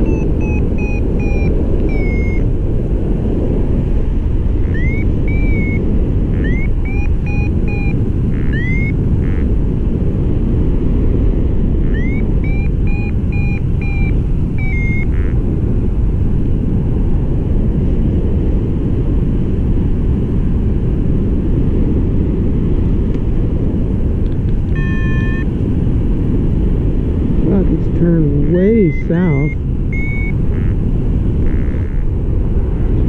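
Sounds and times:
short electronic beeps: 0:00.0 - 0:02.5, 0:04.6 - 0:09.5, 0:11.8 - 0:15.4, 0:24.7 - 0:25.5, 0:28.5 - 0:30.8, 0:31.4 - 0:32.0
wind rushing over microphone: 0:00.0 - 0:33.0.

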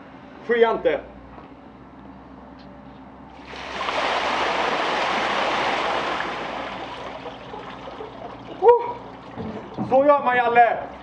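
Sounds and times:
water splashing on concrete: 0:03.4 - 0:09.8.

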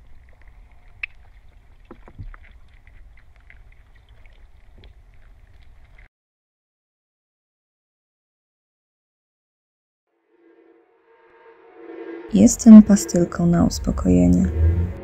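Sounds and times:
faint clicks and crackles: 0:00.0 - 0:06.1
low rumbling ambient soundtrack: 0:10.2 - 0:15.0.

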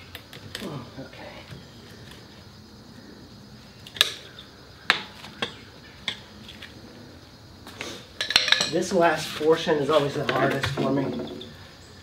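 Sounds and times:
tire levers clinking on metal rim: 0:08.2 - 0:08.9.

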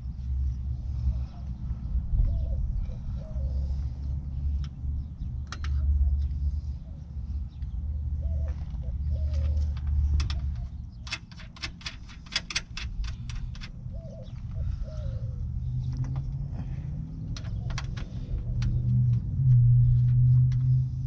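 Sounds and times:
dove cooing: 0:02.2 - 0:04.0, 0:08.1 - 0:10.8, 0:13.8 - 0:19.1
rapid plastic clicks and rattles: 0:09.6 - 0:13.8, 0:17.3 - 0:18.8.

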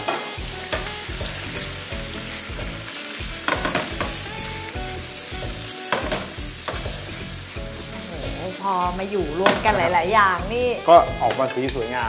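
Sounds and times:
seafood sizzling in hot oil: 0:00.0 - 0:12.0
pan or utensil clattering: 0:03.5 - 0:04.2, 0:05.9 - 0:06.9.

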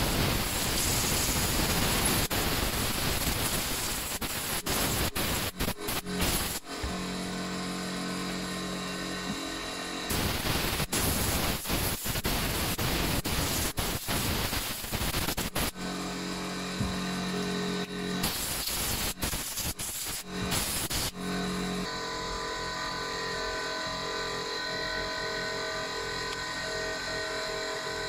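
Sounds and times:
compressed air hissing: 0:00.0 - 0:06.7, 0:10.1 - 0:15.8, 0:18.2 - 0:21.2
steady hum: 0:00.0 - 0:28.0.

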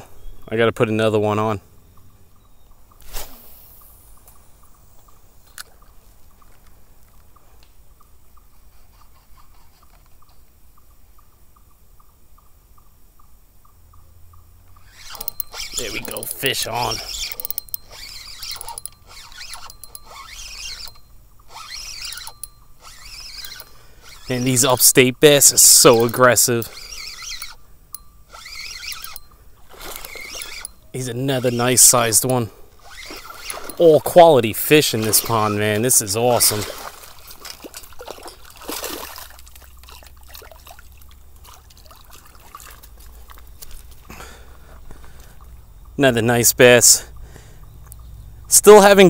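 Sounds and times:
sharp clicks: 0:14.7 - 0:34.1
high wavering squeaks: 0:14.7 - 0:38.8
fishing reel being cranked: 0:14.8 - 0:40.8
fish splashing and thrashing: 0:28.3 - 0:30.8, 0:31.6 - 0:44.2
water dripping: 0:36.4 - 0:43.8.

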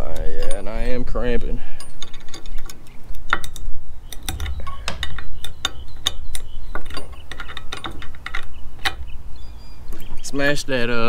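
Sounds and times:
small metallic clicks: 0:01.8 - 0:09.2
low steady rumble: 0:04.2 - 0:06.7.

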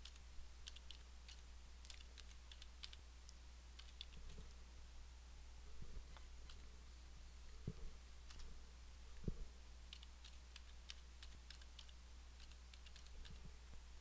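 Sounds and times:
keyboard typing: 0:00.0 - 0:03.0, 0:03.8 - 0:04.5, 0:08.3 - 0:08.5, 0:09.9 - 0:13.4
low steady hum: 0:00.0 - 0:14.0.

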